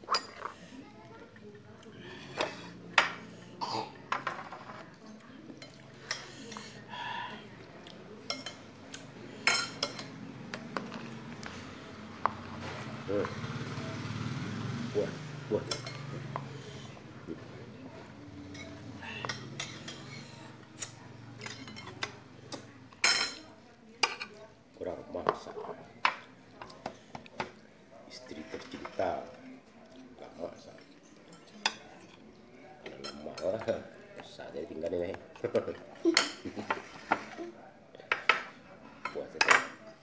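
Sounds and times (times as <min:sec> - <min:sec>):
plates and cutlery clinking: 0:00.0 - 0:00.7, 0:02.3 - 0:06.8, 0:08.2 - 0:11.6, 0:15.6 - 0:16.6, 0:18.4 - 0:24.4, 0:30.7 - 0:34.4, 0:35.1 - 0:40.0.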